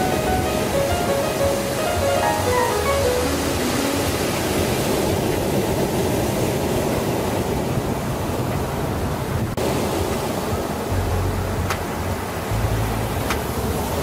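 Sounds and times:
soft musical notes: 0.0s - 4.8s
waves washing up a beach: 0.0s - 14.0s.

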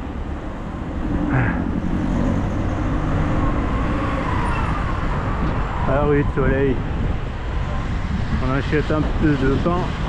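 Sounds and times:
car engines and road noise: 0.0s - 10.0s.

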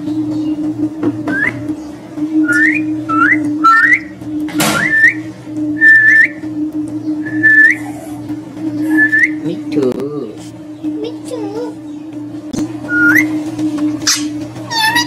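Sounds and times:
steady low hum: 0.0s - 15.0s
short upward sliding whistles: 4.8s - 6.4s, 7.2s - 7.8s.

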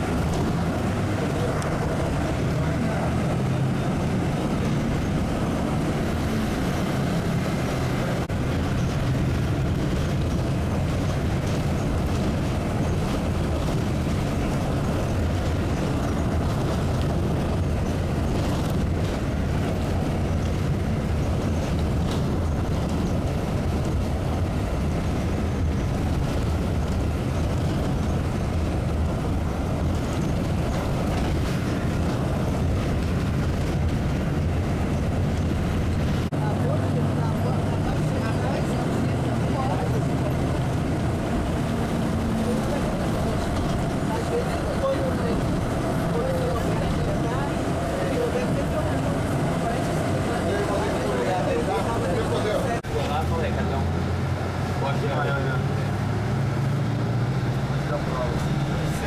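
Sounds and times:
vehicle engine and road noise: 0.0s - 59.0s.

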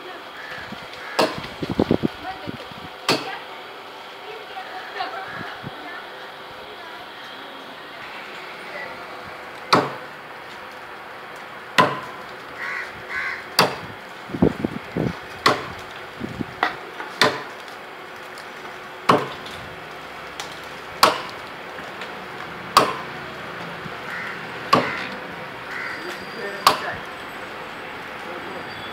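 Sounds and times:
chopping blows into palm trunk: 1.2s - 1.4s, 3.1s - 3.3s, 9.7s - 10.0s, 15.4s - 15.7s, 17.2s - 17.5s, 19.1s - 19.4s, 22.7s - 23.0s.

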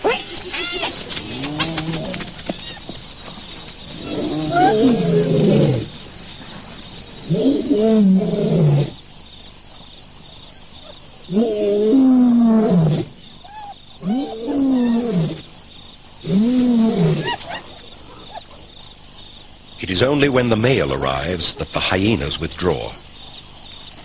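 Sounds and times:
insect trill: 0.0s - 24.0s
lions calling: 3.8s - 6.1s, 7.2s - 8.9s, 10.8s - 15.4s.

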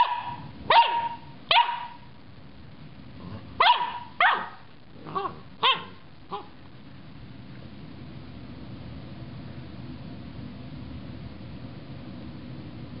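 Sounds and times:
puppy barking high-pitched: 0.0s - 2.1s, 3.6s - 6.6s.

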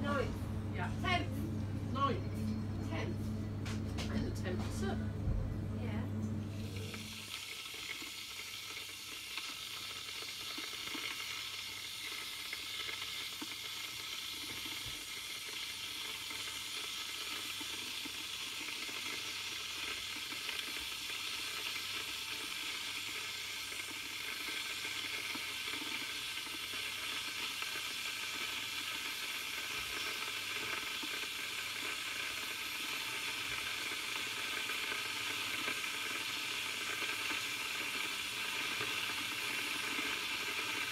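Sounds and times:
electric kettle hissing: 0.0s - 40.9s.

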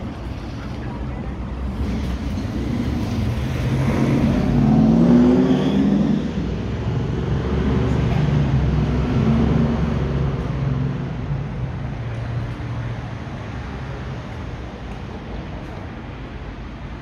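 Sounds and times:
traffic low rumble: 0.0s - 17.0s
car engine accelerating past: 3.3s - 6.4s.

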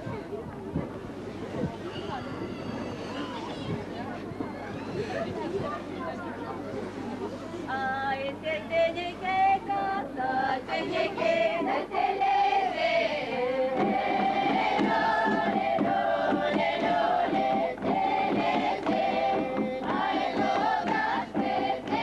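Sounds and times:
mixed choir singing: 8.8s - 22.0s.

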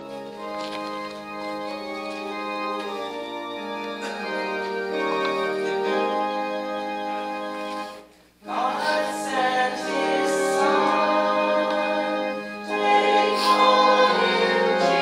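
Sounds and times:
congregation singing a hymn: 0.0s - 15.0s
organ playing: 0.0s - 15.0s.

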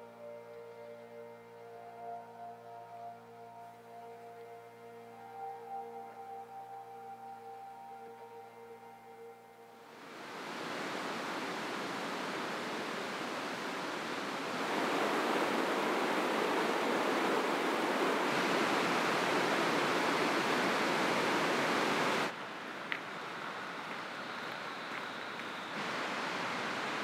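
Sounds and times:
river rushing over boulders: 9.9s - 27.0s.

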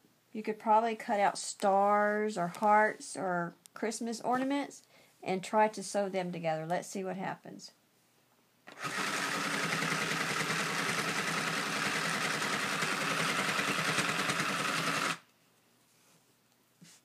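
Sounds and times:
toy sewing machine chattering: 8.7s - 15.2s.

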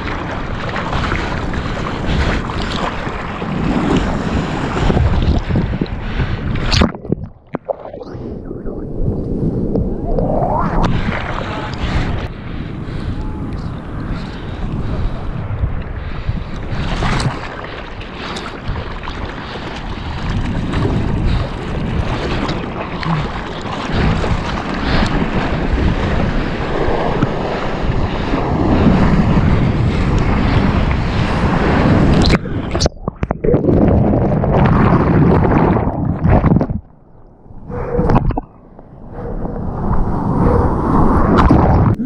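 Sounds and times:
water splashing against surfboard: 0.0s - 5.8s, 16.8s - 29.4s
wind buffeting microphone: 0.0s - 42.0s.

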